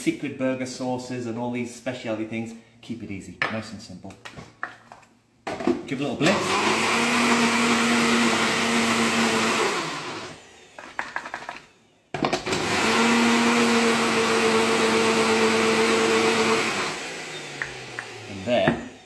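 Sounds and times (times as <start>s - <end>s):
blender motor humming: 6.2s - 19.0s.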